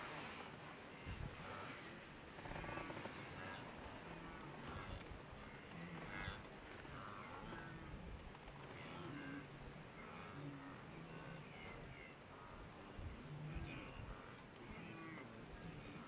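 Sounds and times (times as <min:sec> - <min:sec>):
outdoor background noise: 0:00.0 - 0:16.0
faint bird chirps: 0:08.7 - 0:16.0.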